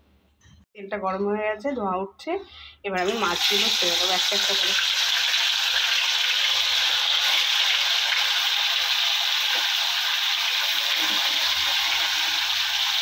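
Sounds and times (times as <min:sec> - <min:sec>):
fish sizzling in hot oil: 0:03.1 - 0:13.0.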